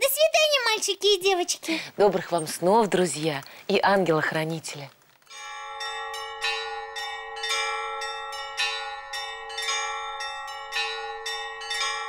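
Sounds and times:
bells ringing: 0:05.3 - 0:12.0.

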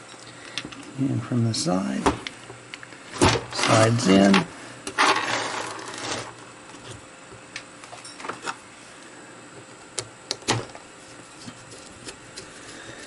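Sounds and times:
metal parts scraping: 0:05.0 - 0:06.3.

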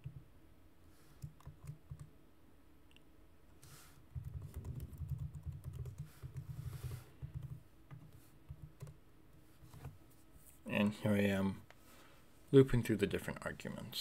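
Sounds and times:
typing on a computer keyboard: 0:01.2 - 0:02.1, 0:04.1 - 0:09.0.

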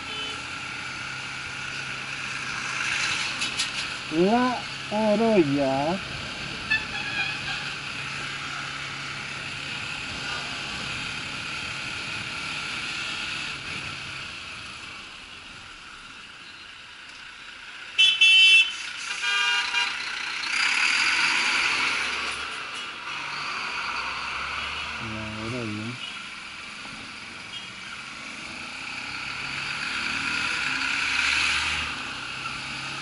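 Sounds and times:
vehicle horn toots: 0:00.0 - 0:00.4, 0:18.0 - 0:20.0
motorcycle wind and road noise: 0:00.1 - 0:15.4.

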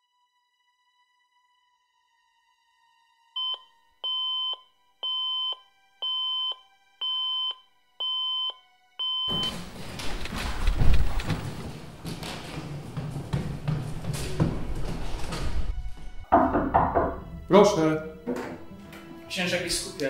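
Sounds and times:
digital alarm clock beeping: 0:03.4 - 0:09.5.

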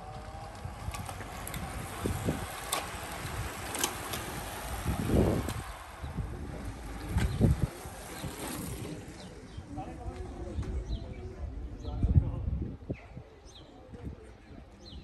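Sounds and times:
sharp clicks from bikes: 0:00.0 - 0:11.2
bicycles riding past: 0:00.0 - 0:11.6
wind buffeting microphone: 0:00.0 - 0:15.0.

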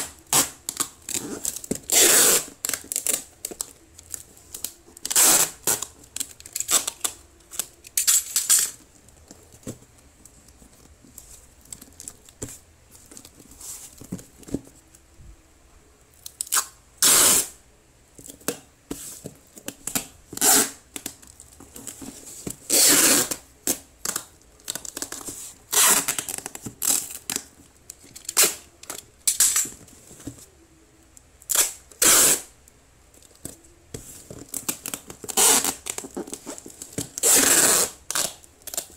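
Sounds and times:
packing tape ripping off roll: 0:00.0 - 0:03.8, 0:04.5 - 0:08.8, 0:16.4 - 0:17.6, 0:19.9 - 0:21.1, 0:22.7 - 0:27.5, 0:28.2 - 0:29.7, 0:31.5 - 0:32.5, 0:34.5 - 0:38.9.

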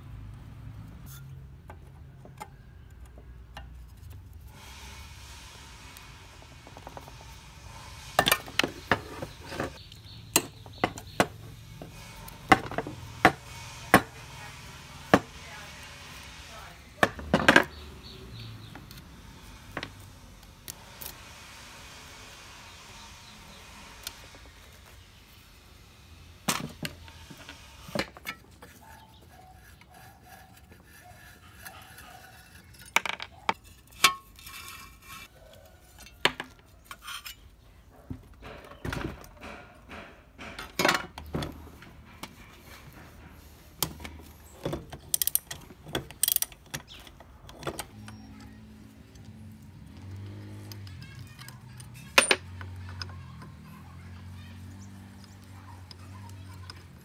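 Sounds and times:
tools clinking on metal engine parts: 0:44.6 - 0:48.6, 0:50.7 - 0:53.7.

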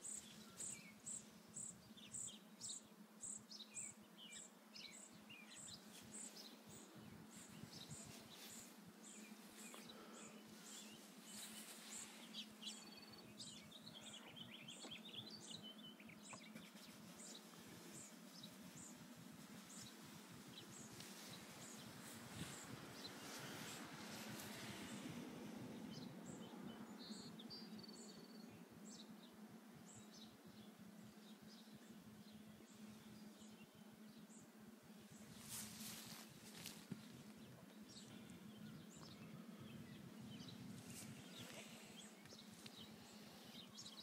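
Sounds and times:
bird chirps: 0:00.0 - 0:19.0.

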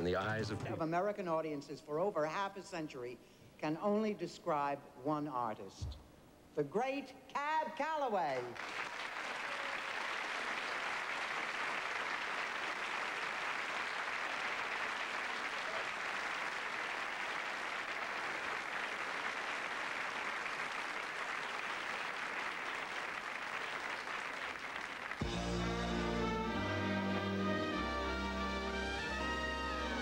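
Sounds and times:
audience applauding: 0:08.5 - 0:27.9.

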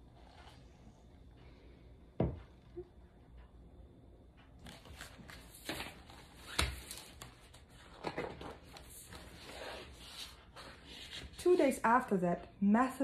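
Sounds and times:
book pages turning: 0:04.6 - 0:11.8.

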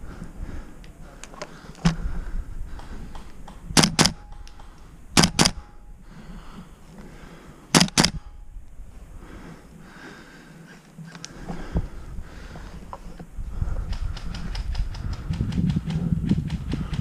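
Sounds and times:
airsoft gun shots: 0:03.7 - 0:04.4, 0:05.2 - 0:05.7, 0:07.7 - 0:08.2.

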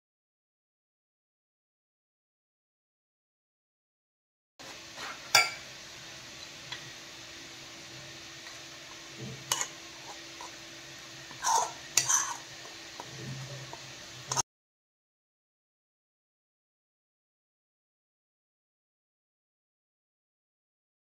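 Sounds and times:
metal spoon clinking against bowl: 0:05.4 - 0:05.6.

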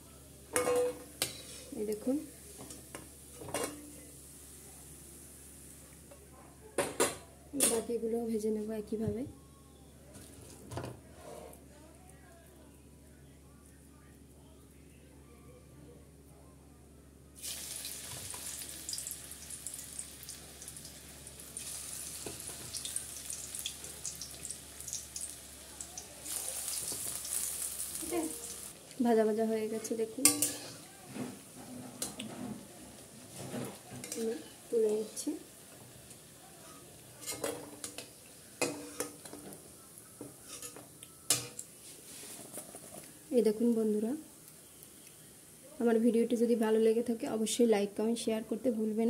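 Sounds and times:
hot oil sizzling and crackling: 0:17.4 - 0:30.8, 0:31.4 - 0:41.7
metal spatula clinking on steel: 0:30.2 - 0:30.7.

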